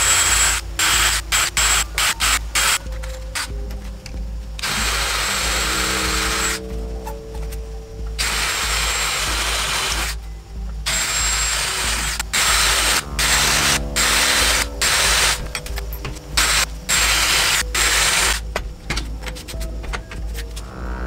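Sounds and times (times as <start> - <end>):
cordless drill cutting metal: 0.0 - 2.8, 4.6 - 6.6, 8.2 - 10.2, 10.8 - 18.4.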